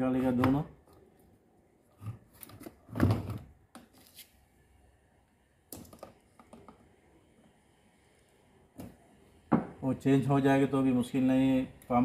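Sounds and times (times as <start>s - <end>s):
plastic clicks and knocks: 5.7s - 6.9s.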